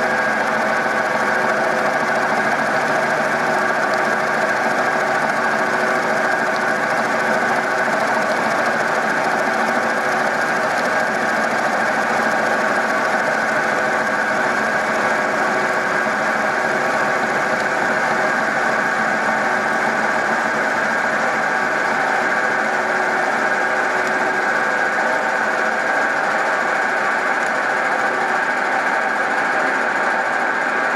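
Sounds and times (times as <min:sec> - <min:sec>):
milling machine cutting metal: 0:00.0 - 0:30.8.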